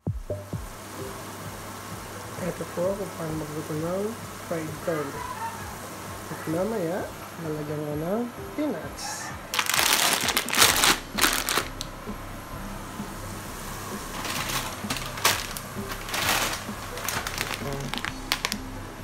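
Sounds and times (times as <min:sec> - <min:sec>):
garlic frying in oil: 0:00.6 - 0:08.7, 0:09.5 - 0:18.7
plastic bag crinkling: 0:09.5 - 0:11.9, 0:14.0 - 0:18.6.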